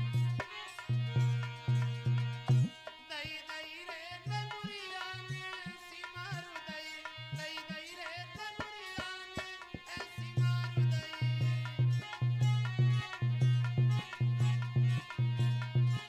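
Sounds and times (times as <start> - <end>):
tabla drum strokes: 0.0 - 2.8
man singing devotional song: 0.0 - 16.0.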